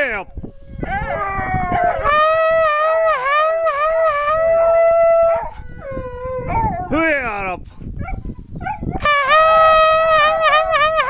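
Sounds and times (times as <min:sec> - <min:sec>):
hound howling: 0:00.3 - 0:07.0.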